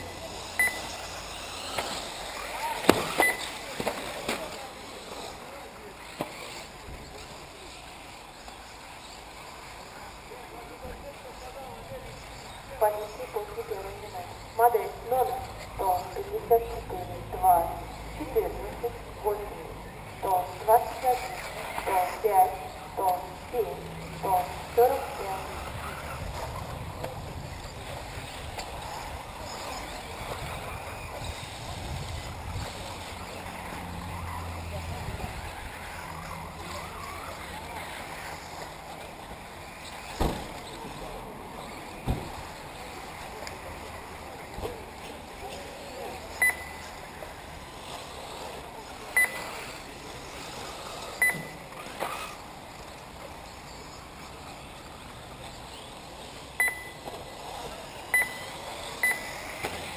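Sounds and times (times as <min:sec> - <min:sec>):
short high electronic beeps: 0:00.0 - 0:00.9, 0:03.2 - 0:03.5, 0:46.4 - 0:46.8, 0:49.2 - 0:49.5, 0:51.2 - 0:51.6, 0:56.6 - 0:57.0, 0:58.1 - 0:59.4
wind buffeting microphone: 0:25.8 - 0:29.4, 0:30.2 - 0:33.0.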